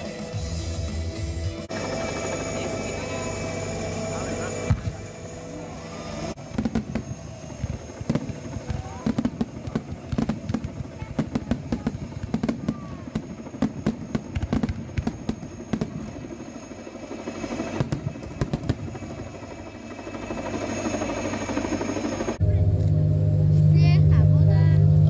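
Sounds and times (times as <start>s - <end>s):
steady rumble: 0.2s - 25.0s
fireworks bangs and crackling: 4.2s - 5.1s, 6.3s - 19.4s.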